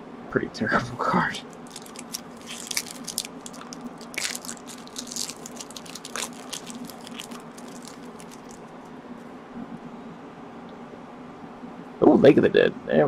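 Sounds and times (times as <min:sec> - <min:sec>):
foil wrapper crinkling: 0:01.5 - 0:08.7.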